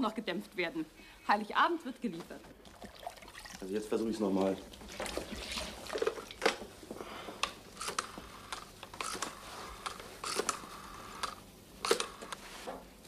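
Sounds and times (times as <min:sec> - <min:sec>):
rotary dial clicking and whirring: 0:07.4 - 0:12.4.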